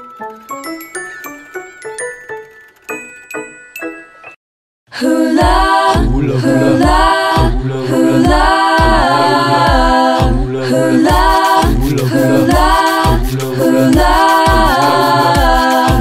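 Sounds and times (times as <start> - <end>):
wordless sung chords: 5.0 - 16.0
steady bass beat: 5.4 - 10.5, 11.1 - 16.0.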